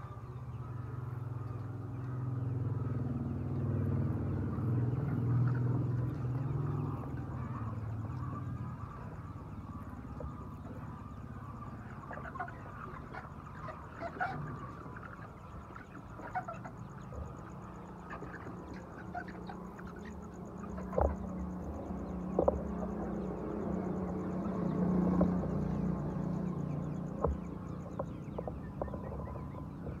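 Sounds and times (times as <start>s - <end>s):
vehicle engine hum: 0.0s - 30.0s
hens clucking: 5.4s - 23.3s.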